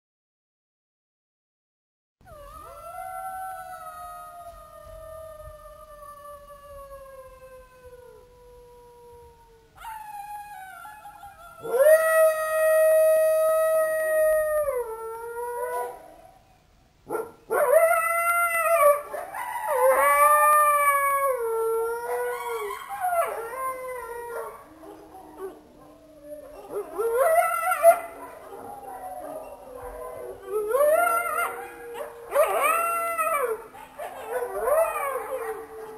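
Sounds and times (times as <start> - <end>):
jackals howling: 17.5 - 35.9.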